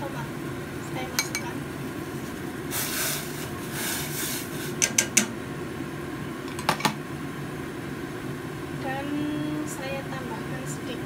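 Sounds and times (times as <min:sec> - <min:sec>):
glass bowl clinking on pot: 0:01.2 - 0:01.5.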